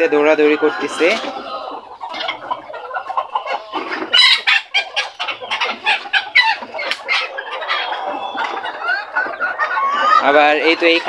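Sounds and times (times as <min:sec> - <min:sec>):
chickens clucking: 0:00.0 - 0:11.0
short sharp chicken calls: 0:02.1 - 0:10.3.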